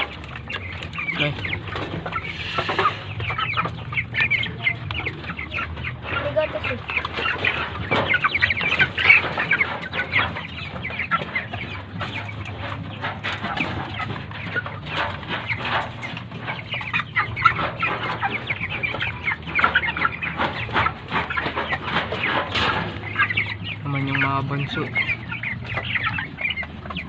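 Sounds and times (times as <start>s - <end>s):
chickens clucking: 0.0s - 27.0s.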